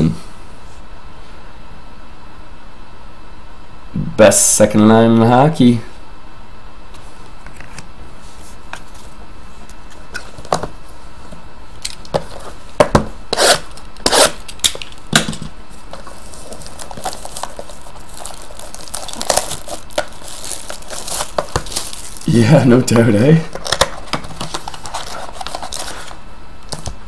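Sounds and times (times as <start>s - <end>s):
steady background hiss: 0.0s - 27.0s
foil wrapper ripping and crinkling: 16.0s - 22.7s, 23.5s - 26.2s.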